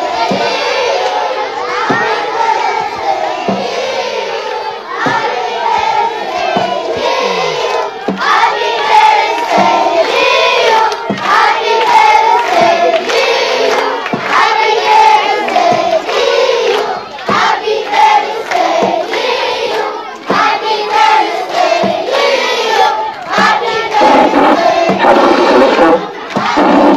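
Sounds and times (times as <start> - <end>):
children singing in unison: 0.0 - 26.9.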